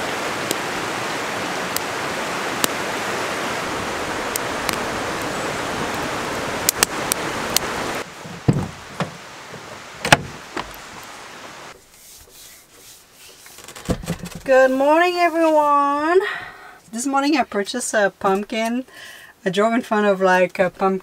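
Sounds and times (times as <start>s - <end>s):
campfire crackling: 0.0s - 12.0s
creek rushing: 0.0s - 13.5s
footsteps thumping: 8.2s - 10.8s.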